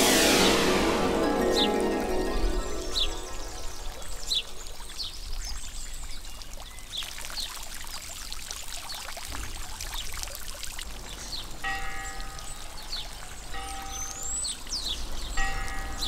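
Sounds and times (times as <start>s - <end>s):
fountain water splashing into pool: 0.0s - 12.6s.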